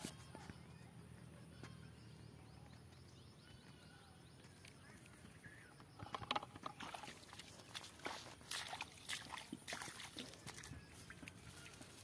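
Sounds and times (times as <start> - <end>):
rustling and splashing in water: 6.3 - 12.0.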